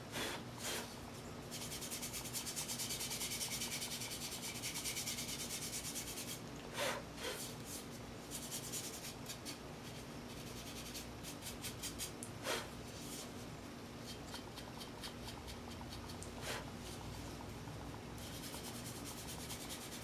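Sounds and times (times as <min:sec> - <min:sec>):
puff of breath blowing: 0:12.4 - 0:12.7.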